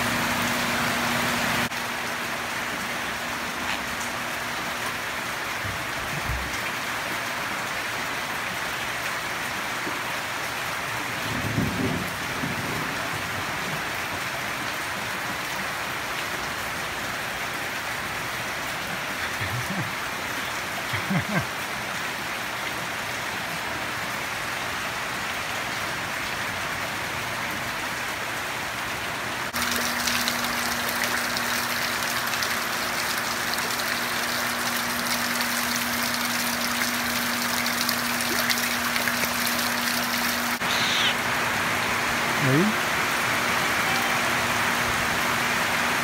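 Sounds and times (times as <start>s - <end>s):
steady rain falling: 0.0s - 46.0s
water poured into small pool: 29.6s - 41.0s.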